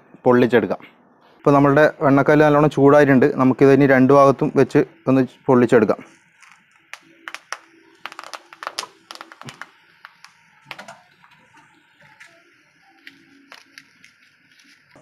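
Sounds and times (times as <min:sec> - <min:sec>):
leaf parcel crackling on hot stone: 0:06.1 - 0:15.0.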